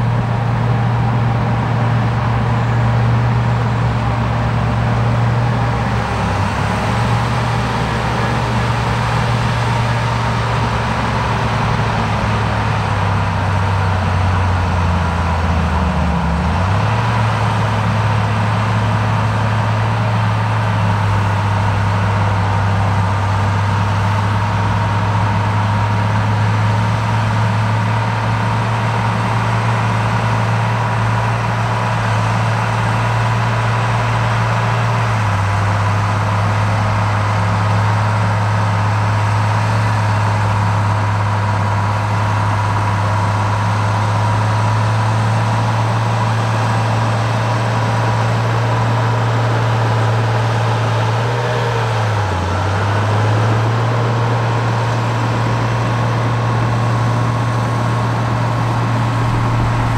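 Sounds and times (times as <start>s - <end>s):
diesel engine running: 0.0s - 59.9s
faint steady whine: 56.1s - 59.9s.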